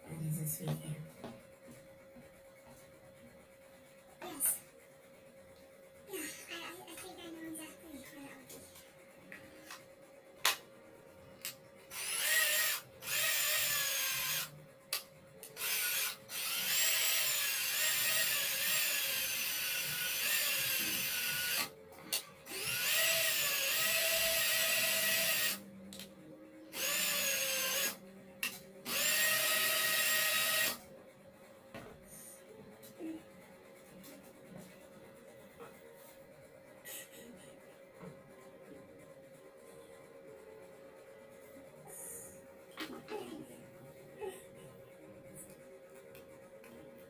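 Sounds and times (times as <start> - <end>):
cordless drill motor whining: 11.9 - 14.5, 15.5 - 21.7, 22.5 - 25.6, 26.7 - 28.0, 28.9 - 30.8.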